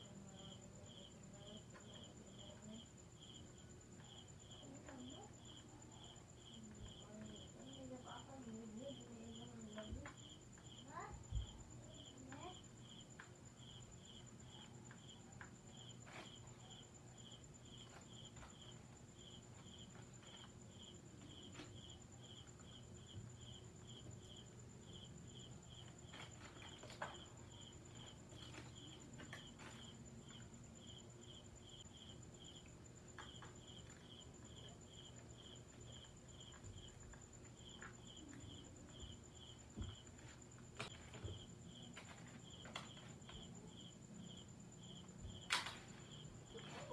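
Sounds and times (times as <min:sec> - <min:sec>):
cricket chirping: 0:00.0 - 0:46.9.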